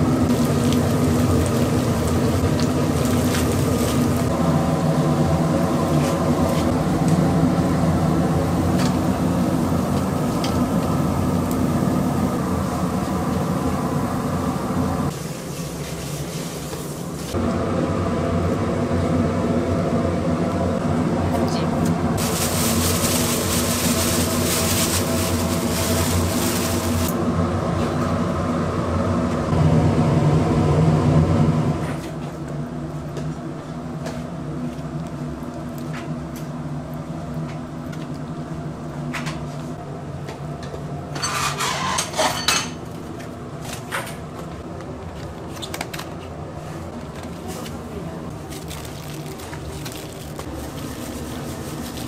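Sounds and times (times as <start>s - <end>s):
steady machine hum: 0.0s - 16.0s, 16.9s - 41.2s
dishes and utensils clattering: 41.1s - 42.8s.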